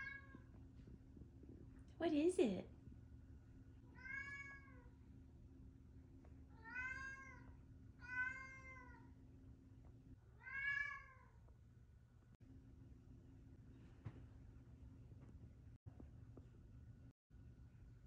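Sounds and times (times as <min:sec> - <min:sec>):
cat meowing: 0:00.0 - 0:00.4, 0:03.9 - 0:04.9, 0:06.5 - 0:09.1, 0:10.4 - 0:11.4.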